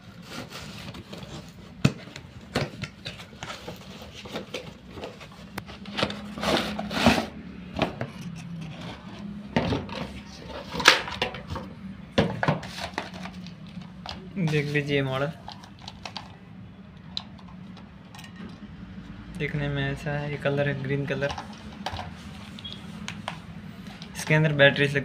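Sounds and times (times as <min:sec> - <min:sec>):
cardboard and plastic rustling: 0:00.0 - 0:08.1, 0:08.7 - 0:16.4.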